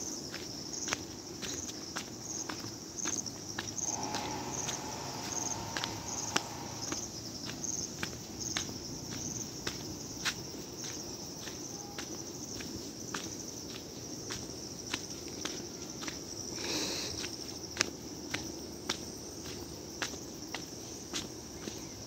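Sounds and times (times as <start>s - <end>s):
footsteps on stony dirt: 0.2s - 22.0s
high-pitched insect drone: 3.8s - 8.6s.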